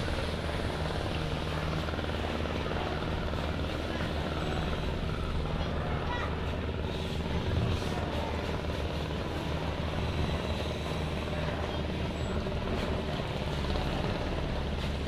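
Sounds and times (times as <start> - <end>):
ferry engines droning: 0.0 - 15.0.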